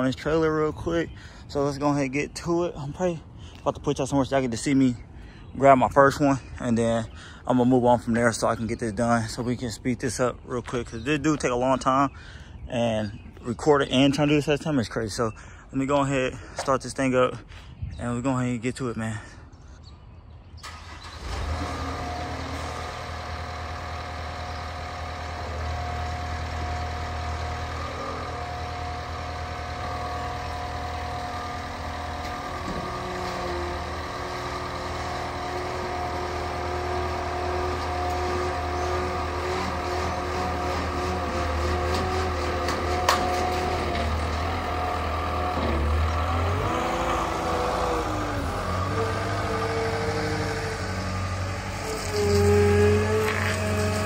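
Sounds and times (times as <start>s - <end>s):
loader engine running: 20.6s - 54.0s.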